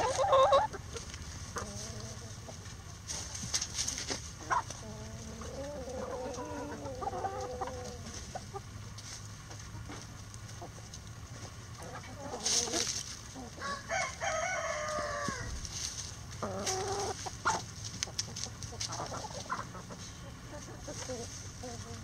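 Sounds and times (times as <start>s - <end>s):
chickens clucking: 0.0s - 22.0s
rooster crowing: 13.6s - 15.6s.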